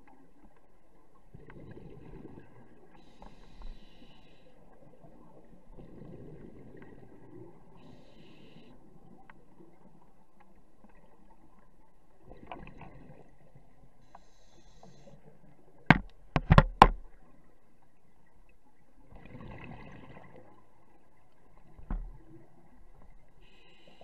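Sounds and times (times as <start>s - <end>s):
diver breathing through regulator: 3.0s - 4.6s, 23.4s - 24.0s
loud sharp knocks: 15.9s - 17.0s.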